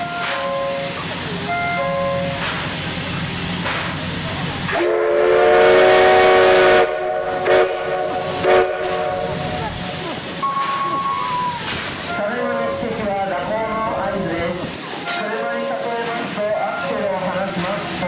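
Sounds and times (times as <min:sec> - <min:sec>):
steam hissing: 0:00.0 - 0:18.0
steam whistle: 0:04.7 - 0:12.8.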